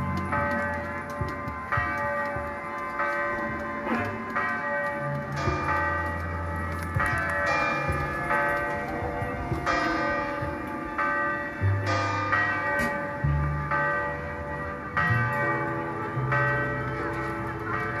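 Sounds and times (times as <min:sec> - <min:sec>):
bell-like metallic ringing: 0:00.0 - 0:18.0
steady low tone: 0:05.0 - 0:18.0.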